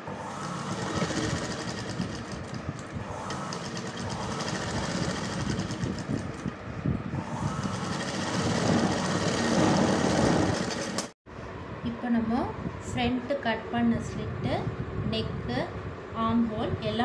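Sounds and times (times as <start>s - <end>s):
sewing machine stitching: 0.4s - 6.5s, 7.4s - 11.2s.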